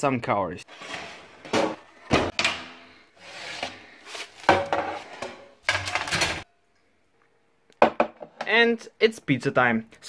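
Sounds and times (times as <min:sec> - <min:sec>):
metal tray and rack clattering: 0:04.4 - 0:06.4.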